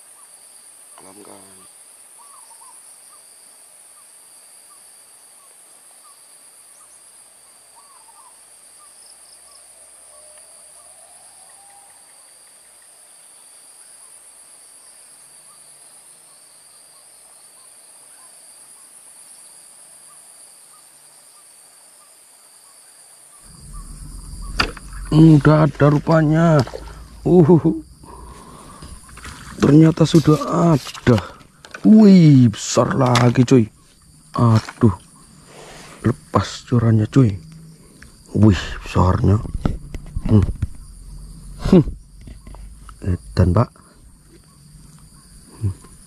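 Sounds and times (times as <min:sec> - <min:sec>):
insect chorus buzzing: 0:00.0 - 0:46.0
short birdcalls: 0:01.0 - 0:03.2
slow rising call: 0:23.4 - 0:32.5.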